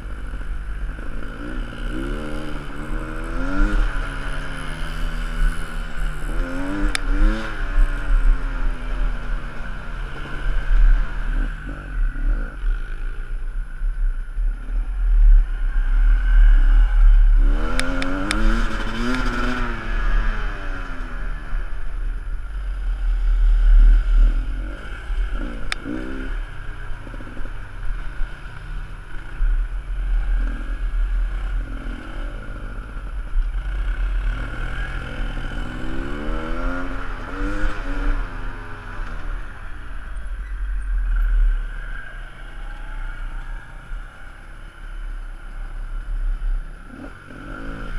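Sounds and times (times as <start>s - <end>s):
dirt bike engine revving: 16.1s - 21.4s.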